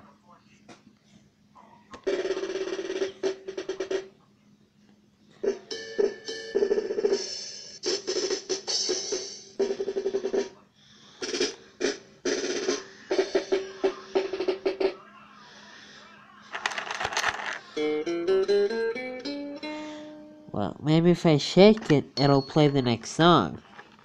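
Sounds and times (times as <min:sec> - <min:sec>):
toy playing electronic drum clips: 0:02.1 - 0:04.1, 0:05.5 - 0:10.5, 0:11.2 - 0:15.0.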